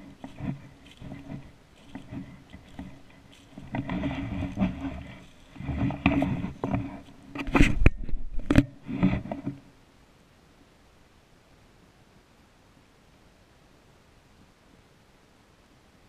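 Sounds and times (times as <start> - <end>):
footsteps crunching dry leaves: 0.0 - 7.3.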